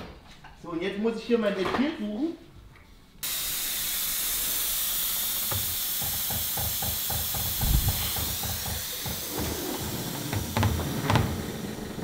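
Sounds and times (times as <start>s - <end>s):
air hissing from valve: 3.2s - 12.0s.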